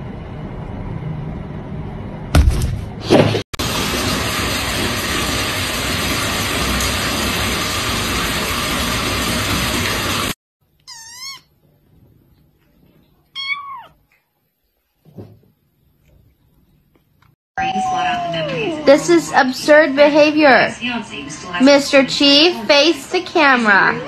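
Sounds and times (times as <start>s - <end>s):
kitten meowing: 10.8s - 11.5s, 13.3s - 14.0s.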